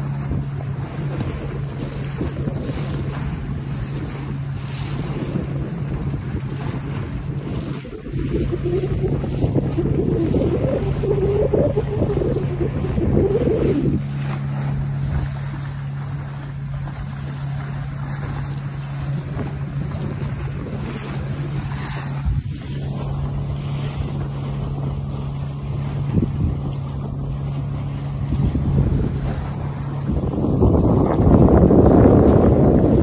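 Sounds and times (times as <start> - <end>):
water washing: 0.0 - 33.0
wind buffeting microphone: 0.0 - 33.0
diesel engine droning: 7.7 - 19.2.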